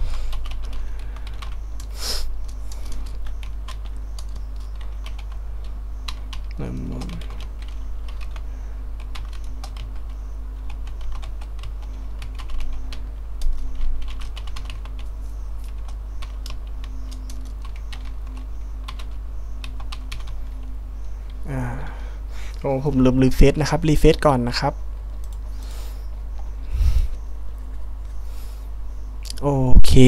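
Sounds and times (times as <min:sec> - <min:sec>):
low electrical hum: 0:00.0 - 0:30.0
keyboard typing: 0:00.3 - 0:20.7, 0:25.0 - 0:25.6.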